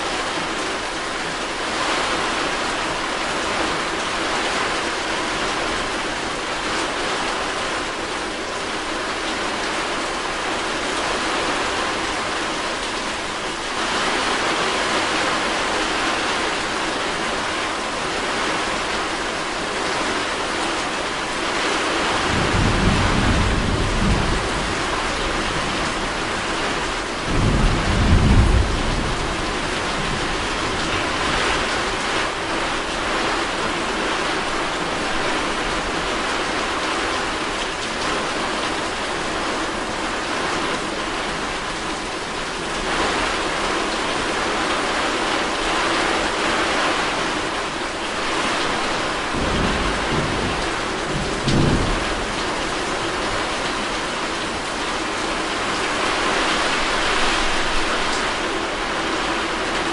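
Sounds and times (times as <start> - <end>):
steady rain falling: 0.0 - 59.9
low rumbles of thunder: 22.2 - 32.1, 48.7 - 53.4.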